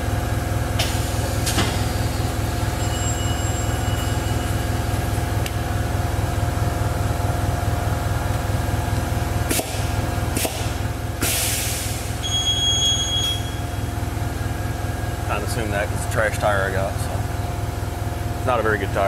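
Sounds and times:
wheel balancer motor hum: 0.0s - 11.2s, 11.8s - 19.0s
machine beep: 2.6s - 5.0s, 12.2s - 13.9s.

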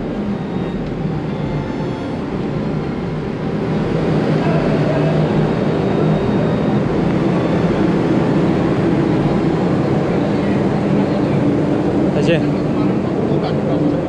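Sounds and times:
ferry machinery rumble: 0.0s - 14.0s.

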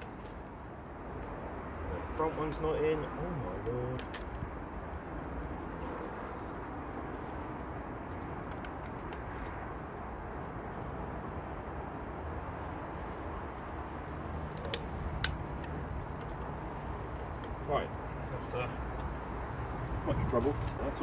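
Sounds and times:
outdoor background rumble: 0.0s - 21.0s
sharp plastic clicks: 8.3s - 9.9s, 14.4s - 17.6s.

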